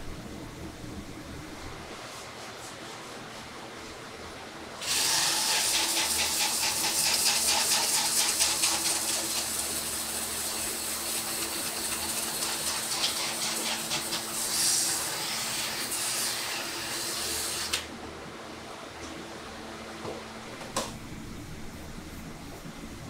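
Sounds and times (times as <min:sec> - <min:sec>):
drill grinding hoof: 0:04.8 - 0:17.8.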